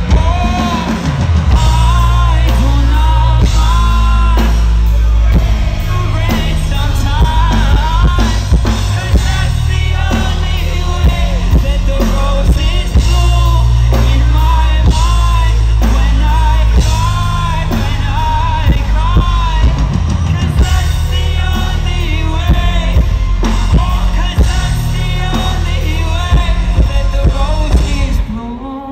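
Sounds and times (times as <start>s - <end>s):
live rock band: 0.0s - 28.9s
man singing: 0.0s - 28.9s.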